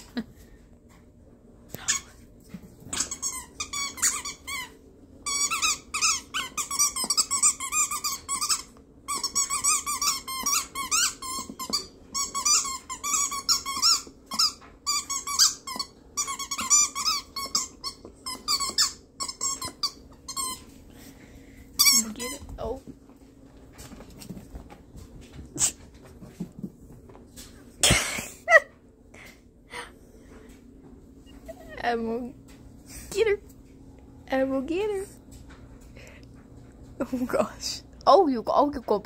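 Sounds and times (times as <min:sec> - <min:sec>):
rubber squeaky toy squeaking: 0:02.9 - 0:04.7, 0:05.3 - 0:20.6.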